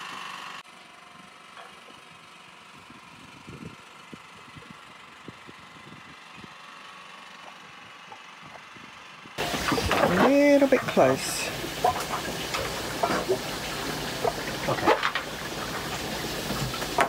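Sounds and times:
boat engine at low revs: 9.4s - 17.0s
hiss of wind and water: 9.4s - 17.0s.

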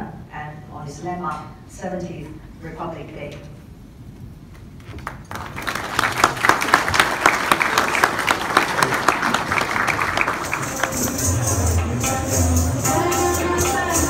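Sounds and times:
crowd applauding: 5.0s - 11.9s
music with tambourine: 10.4s - 14.0s.

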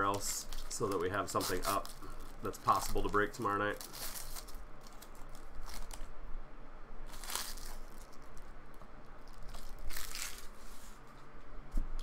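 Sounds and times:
foil wrapper crinkling: 0.0s - 6.1s, 7.1s - 8.5s, 9.2s - 10.6s.

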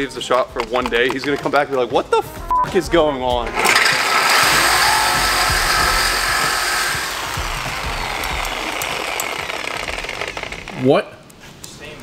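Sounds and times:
reciprocating saw cutting metal pipe: 3.5s - 10.8s.

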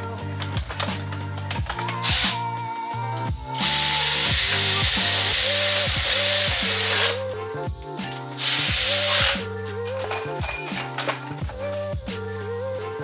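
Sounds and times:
background music: 0.0s - 13.0s
power ratchet running: 0.4s - 2.5s, 3.6s - 7.2s, 8.4s - 9.4s.

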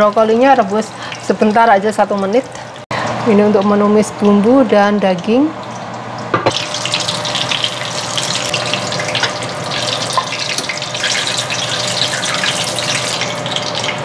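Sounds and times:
hot oil sizzling and crackling: 5.6s - 14.0s.

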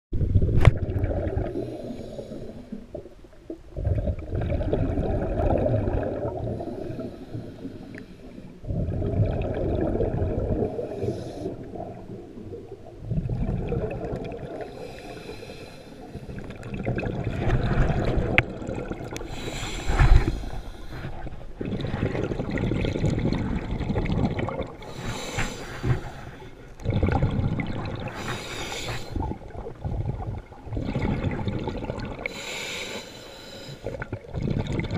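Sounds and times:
exhaled bubbles rumbling: 0.2s - 7.9s, 8.6s - 15.0s, 16.1s - 32.4s, 33.8s - 34.9s
diver breathing through regulator: 1.4s - 2.8s, 6.4s - 8.7s, 10.7s - 11.7s, 14.6s - 16.5s, 19.2s - 22.0s, 24.8s - 26.8s, 28.0s - 29.4s, 32.2s - 34.0s.

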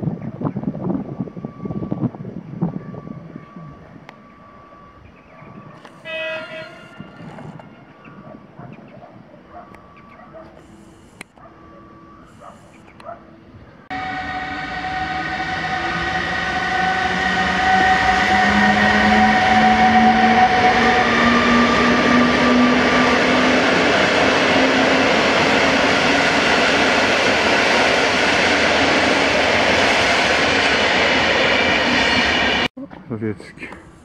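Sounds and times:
electric locomotive whine: 0.0s - 32.7s, 33.6s - 34.0s
train wheels rolling on rails: 13.9s - 32.7s.

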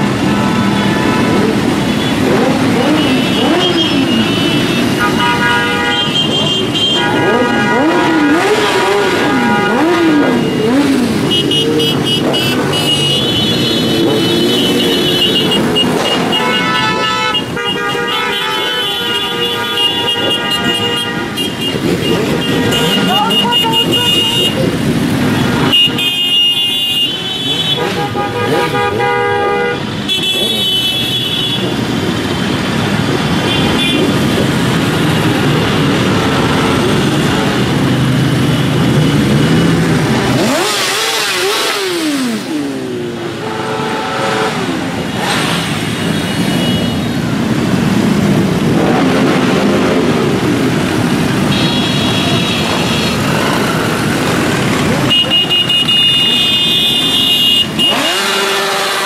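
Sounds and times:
motorcycles riding past: 0.0s - 17.1s, 31.7s - 59.0s
motorcycle engine revving: 0.0s - 17.2s, 19.6s - 26.0s, 27.4s - 59.0s
horns sounding: 0.0s - 47.9s, 48.6s - 59.0s.

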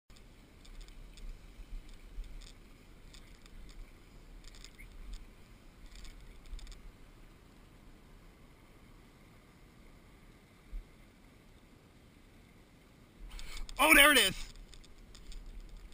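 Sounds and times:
faint high ticks: 0.1s - 8.1s, 13.3s - 15.9s.

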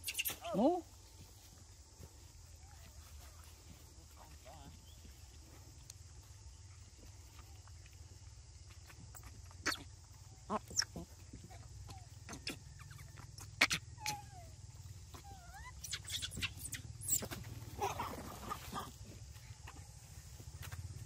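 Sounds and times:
rustle through dry grass: 0.0s - 9.4s, 14.6s - 21.0s
monkey biting and chewing: 7.3s - 14.2s
gliding animal calls: 9.2s - 19.0s.

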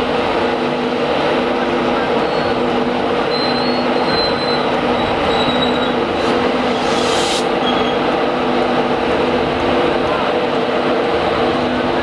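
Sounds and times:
electric locomotive droning: 0.0s - 12.0s
high wheel squeals: 3.3s - 8.1s
short hiss: 6.6s - 7.6s.

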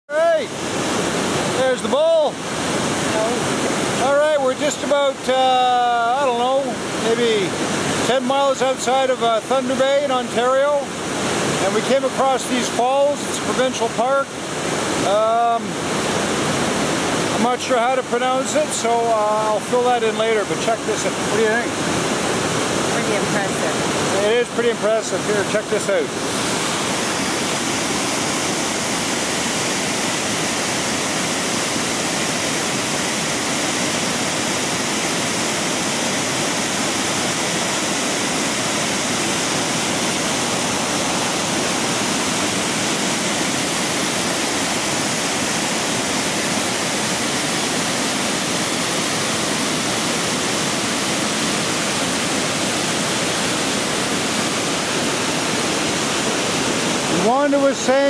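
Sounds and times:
waterfall pouring: 0.2s - 58.0s.

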